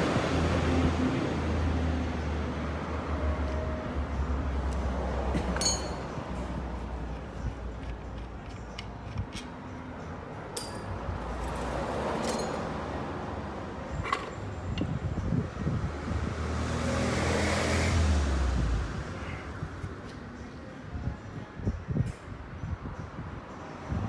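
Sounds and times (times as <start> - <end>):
vehicle engine and road noise: 0.0 - 24.0
metallic clinks: 5.4 - 6.5, 10.5 - 11.0, 12.2 - 12.8.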